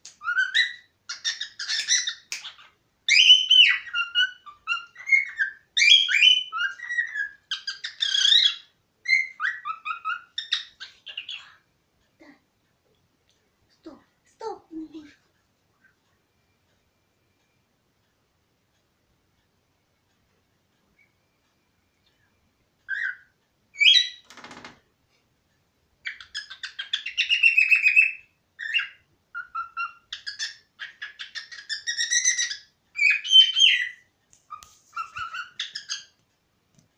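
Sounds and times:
cockatiel whistling and chirping: 0:00.1 - 0:11.6, 0:22.9 - 0:24.2, 0:26.0 - 0:36.1.

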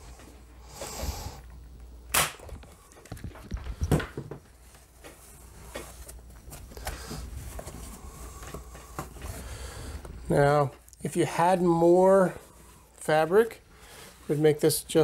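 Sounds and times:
staple gun snap: 0:02.1 - 0:02.5.

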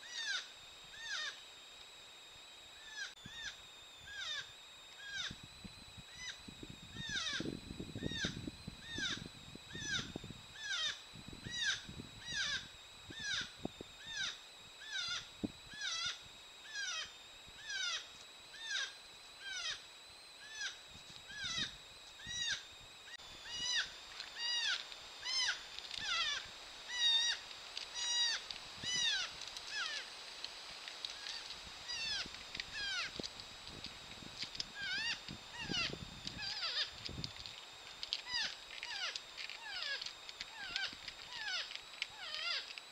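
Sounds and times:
porcupine whining squeal: 0:02.9 - 0:05.5, 0:06.1 - 0:22.6, 0:28.0 - 0:30.1, 0:34.8 - 0:37.0, 0:38.2 - 0:42.8.

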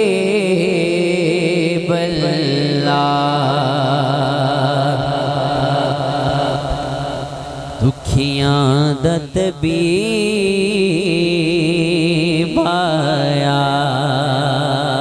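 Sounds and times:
man singing into a microphone: 0:00.0 - 0:15.0
low drone: 0:01.7 - 0:12.4.

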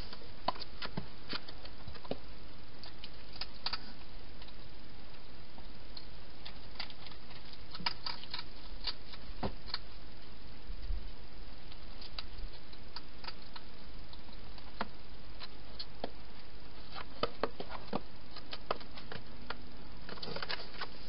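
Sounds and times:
steady hiss: 0:00.0 - 0:07.7.

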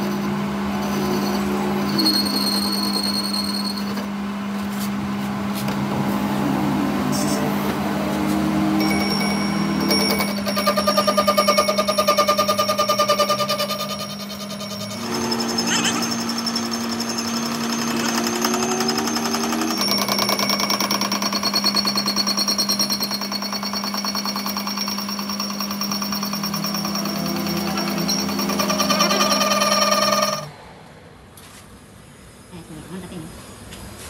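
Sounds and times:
metal lathe humming: 0:00.0 - 0:04.3, 0:06.0 - 0:30.5
rapid rattle of cutting tool: 0:09.8 - 0:30.5.

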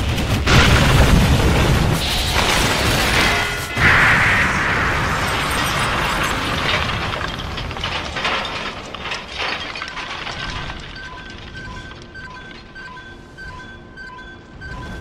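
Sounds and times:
explosion: 0:00.0 - 0:08.8
debris crackling: 0:00.0 - 0:13.8
two-tone electronic beeping: 0:11.0 - 0:15.0.

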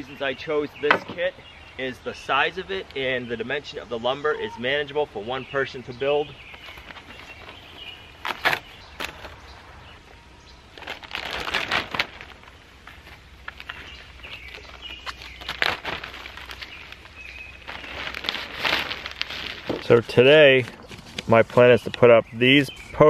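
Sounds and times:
birds chirping faintly: 0:00.0 - 0:23.0
plastic wrap rustling and crinkling: 0:06.4 - 0:09.4, 0:10.7 - 0:22.2.

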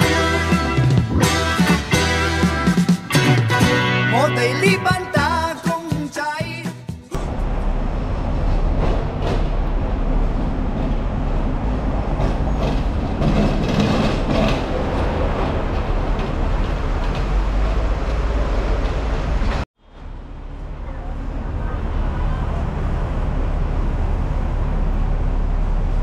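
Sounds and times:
city street traffic: 0:00.0 - 0:26.0
tram rumbling along rails: 0:07.1 - 0:26.0.

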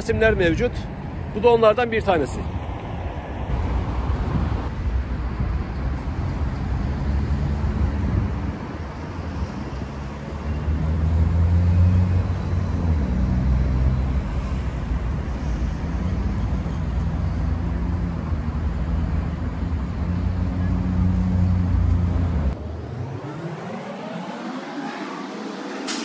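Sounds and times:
road traffic rumble: 0:00.0 - 0:26.0
vehicle passing close: 0:06.0 - 0:26.0.

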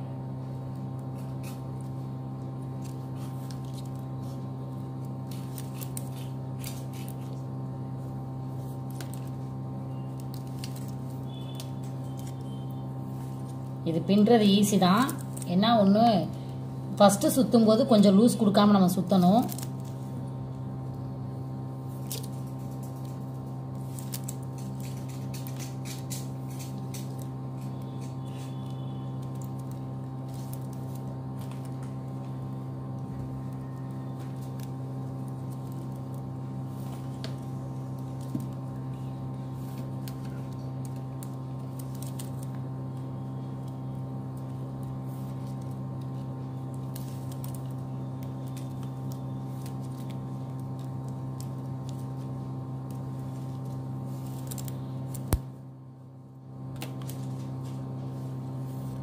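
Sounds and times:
low electrical hum: 0:00.0 - 0:59.0
plastic wire clicking and crinkling: 0:22.0 - 0:55.5, 0:56.7 - 0:57.8.

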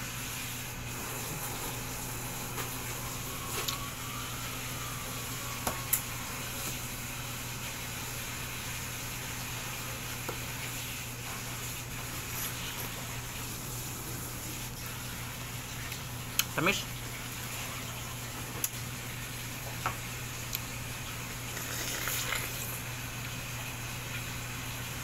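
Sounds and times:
low mechanical hum: 0:00.0 - 0:25.0
room hiss: 0:00.0 - 0:25.0
wet slurping of fruit: 0:21.5 - 0:22.9.

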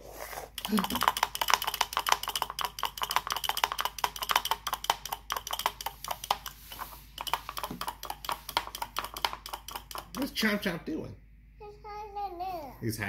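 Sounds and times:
rapid clicking: 0:00.6 - 0:06.6, 0:07.2 - 0:10.3.

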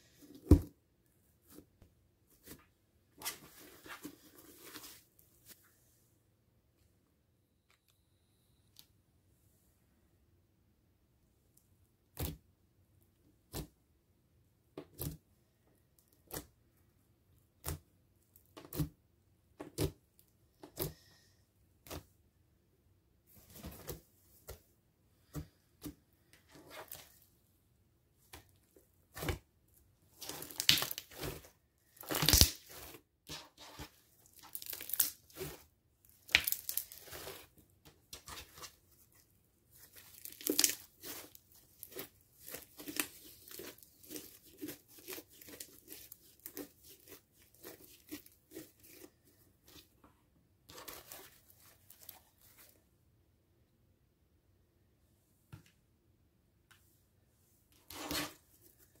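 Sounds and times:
dried slime crackling and popping: 0:30.2 - 0:33.0, 0:34.2 - 0:37.5, 0:39.7 - 0:49.0.

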